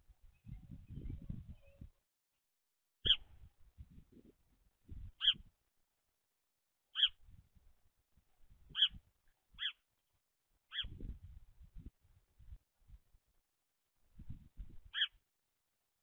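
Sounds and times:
sparrow chirping: 0:03.0 - 0:03.4, 0:05.2 - 0:05.5, 0:06.9 - 0:07.2, 0:08.6 - 0:09.9, 0:10.7 - 0:11.1, 0:14.8 - 0:15.2.

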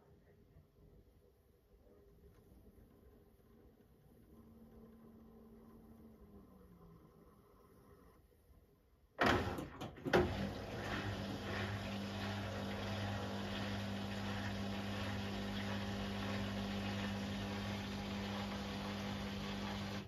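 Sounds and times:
drain pump humming: 0:09.2 - 0:20.0.

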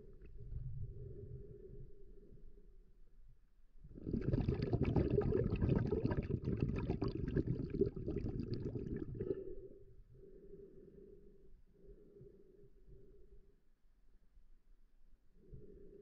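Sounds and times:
water bubbling underwater: 0:03.9 - 0:09.6.

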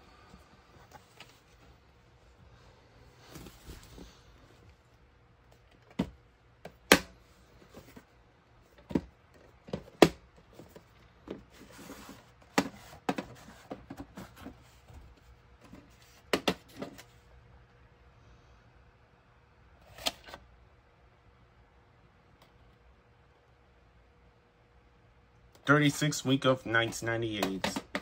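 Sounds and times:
plastic case clicks and knocks: 0:27.4 - 0:28.0.

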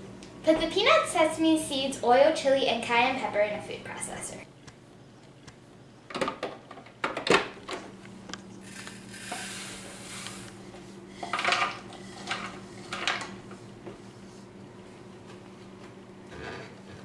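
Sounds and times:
seeds and nuts pouring: 0:08.6 - 0:10.5.

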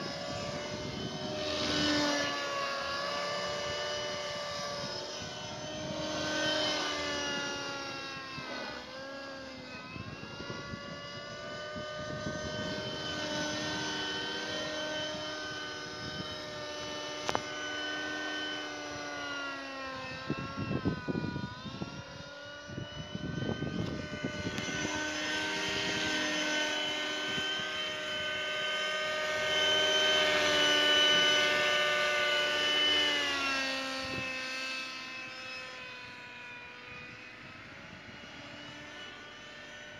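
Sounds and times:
model helicopter engine and rotor: 0:00.0 - 0:39.9.

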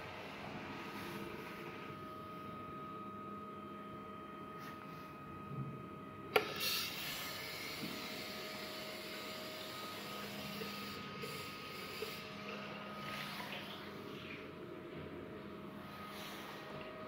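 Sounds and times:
tap water running into basin: 0:09.9 - 0:14.5.

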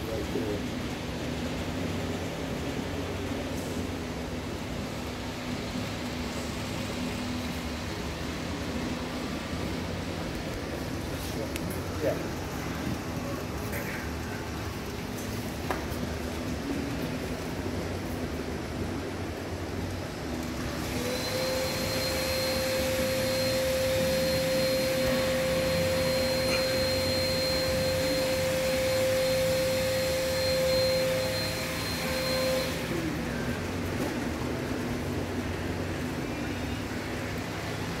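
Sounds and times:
electric whine: 0:00.0 - 0:38.0
model train rushing noise: 0:00.0 - 0:38.0.

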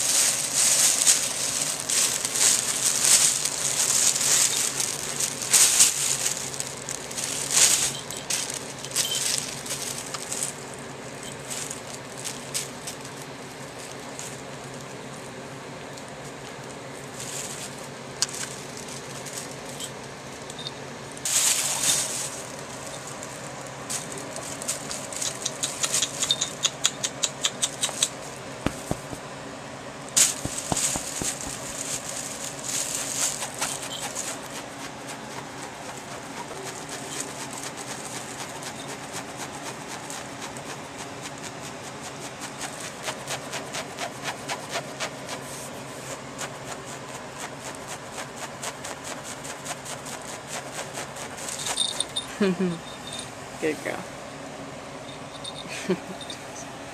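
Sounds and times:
plastic bags crinkling: 0:00.0 - 0:26.4, 0:27.9 - 0:29.3, 0:30.1 - 0:39.6
kittens scuffling: 0:00.0 - 0:29.4, 0:30.1 - 0:54.0
small collar bell jingling: 0:07.7 - 0:09.9, 0:25.5 - 0:27.1, 0:51.5 - 0:53.4, 0:55.0 - 0:56.6.

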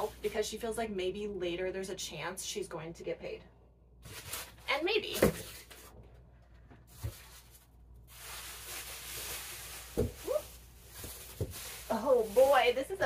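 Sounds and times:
foam scraping against cardboard: 0:08.1 - 0:13.0.

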